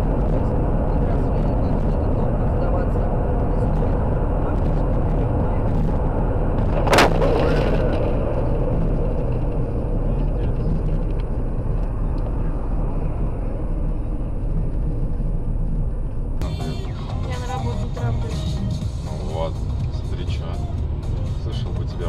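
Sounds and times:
car road and engine noise: 0:00.0 - 0:22.0.

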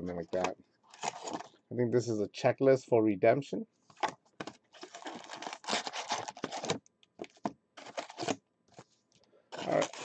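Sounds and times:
card packs rustling in cardboard box: 0:00.3 - 0:01.5, 0:04.0 - 0:08.4, 0:09.5 - 0:10.0.

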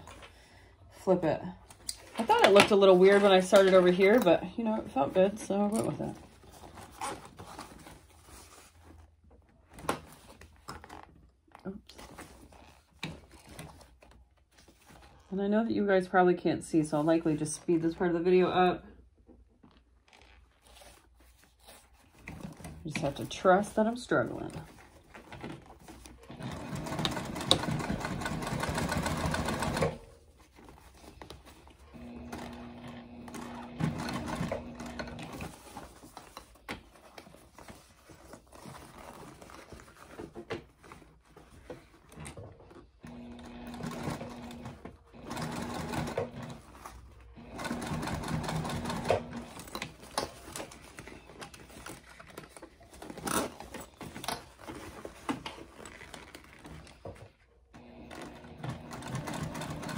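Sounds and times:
sewing machine stitching: 0:26.1 - 0:30.2, 0:31.9 - 0:35.7, 0:42.8 - 0:52.4, 0:57.8 - 0:59.9.

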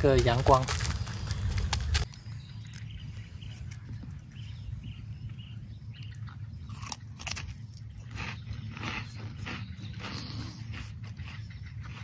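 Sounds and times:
steady low rumble: 0:00.0 - 0:12.0
person chewing crunchy cracker: 0:00.1 - 0:02.1, 0:06.0 - 0:12.0.

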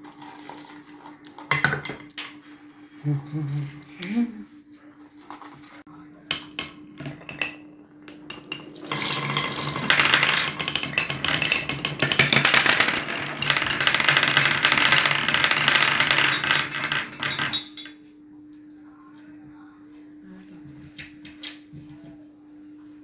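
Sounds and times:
steady low hum: 0:00.3 - 0:23.0
marbles clattering down wooden tracks: 0:08.3 - 0:17.8.

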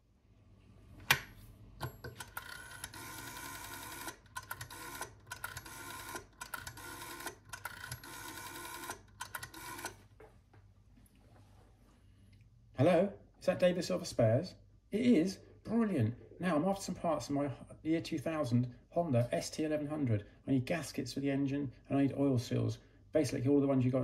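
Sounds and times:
rotary dial ratcheting and whirring: 0:02.1 - 0:09.9.

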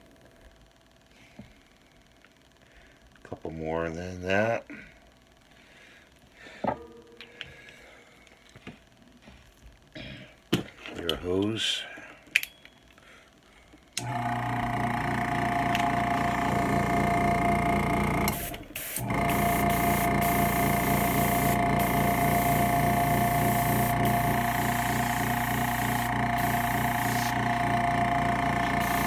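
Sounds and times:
air compressor motor hum: 0:14.0 - 0:29.0.

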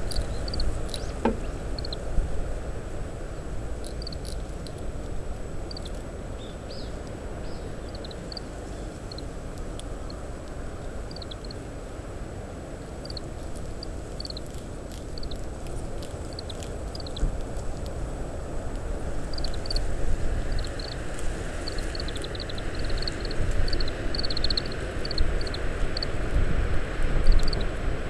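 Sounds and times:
wind noise rumble: 0:12.9 - 0:28.0.

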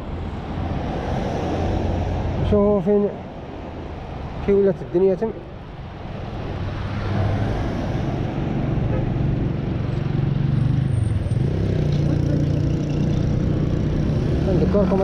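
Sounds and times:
road traffic passing: 0:00.0 - 0:15.0
motorcycle speeding up: 0:08.5 - 0:15.0.

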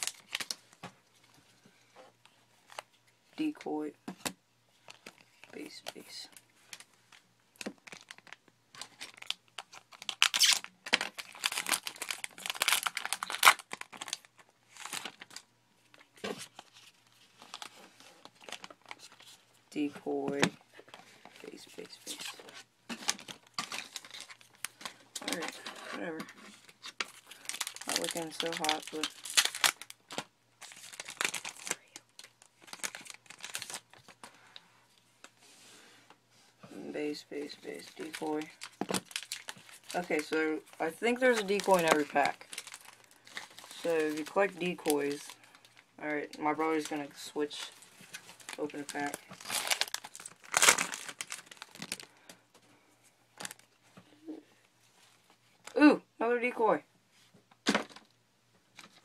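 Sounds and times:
wrapper crinkling and tearing: 0:00.0 - 0:00.8, 0:04.8 - 0:19.6, 0:20.8 - 0:34.4, 0:37.4 - 0:52.4, 0:53.4 - 0:53.8.

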